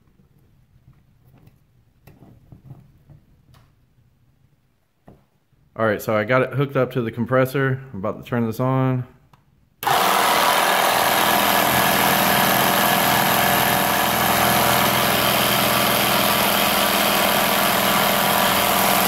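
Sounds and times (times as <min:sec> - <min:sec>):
air compressor running: 0:09.8 - 0:19.0.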